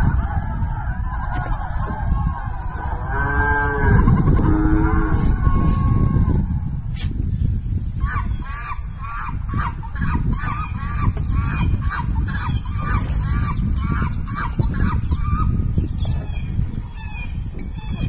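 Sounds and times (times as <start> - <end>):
honking goose-like bird calls: 0.6 - 6.2.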